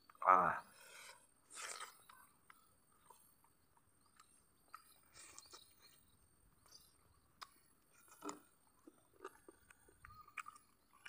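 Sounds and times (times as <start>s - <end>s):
chewing food: 1.4s - 11.0s.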